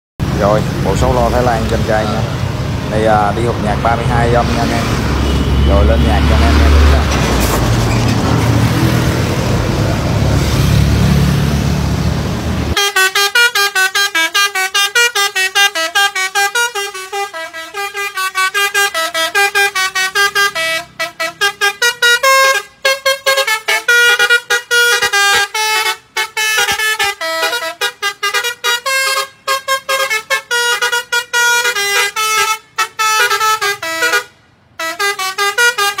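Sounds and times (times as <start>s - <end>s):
air horns playing melody: 12.7s - 36.0s.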